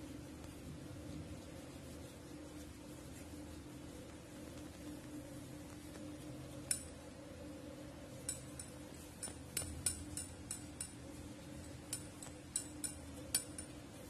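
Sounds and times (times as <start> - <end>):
faint steady hum: 0.0 - 14.0
light sharp clicks and clinks: 6.5 - 7.0, 8.1 - 14.0.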